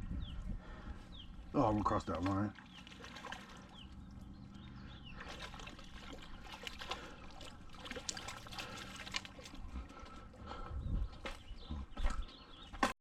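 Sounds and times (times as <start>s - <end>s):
water trickling and lapping: 0.2s - 12.9s
small clicks and splashes: 2.0s - 10.3s.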